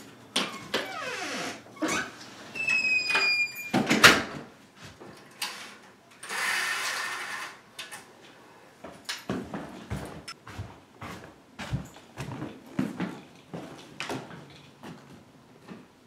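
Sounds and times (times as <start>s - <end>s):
door squeaking: 0.4s - 4.0s.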